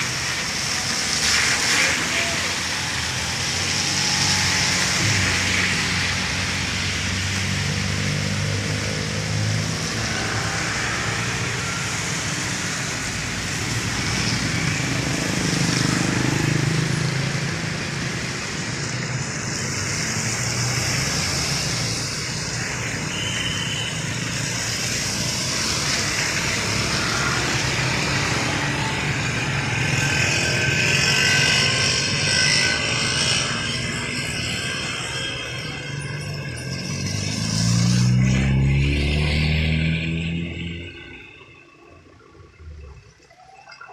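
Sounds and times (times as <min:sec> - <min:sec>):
cars driving by: 0:00.0 - 0:43.9
tyres swishing on wet road: 0:00.0 - 0:43.9.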